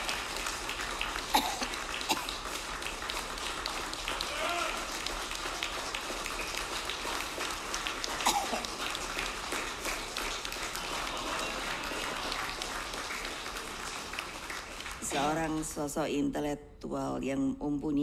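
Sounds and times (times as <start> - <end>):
crowd applauding: 0.0 - 15.8
murmur of voices: 8.1 - 13.2.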